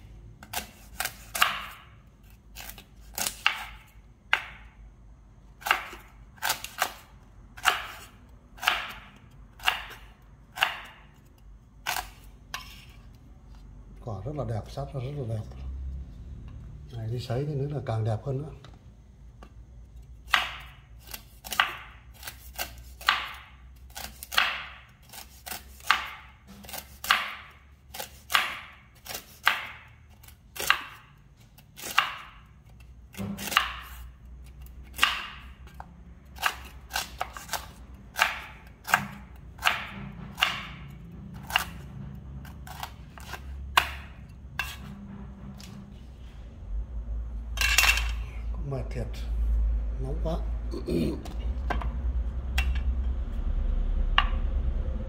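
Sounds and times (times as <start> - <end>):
knife chopping fruit on a board: 0.4 - 4.8, 5.5 - 11.2, 20.2 - 44.9.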